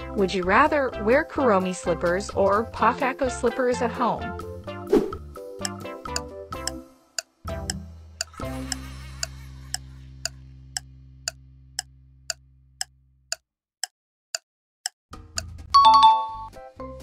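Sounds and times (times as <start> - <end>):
clock ticking: 5.6 - 16.0.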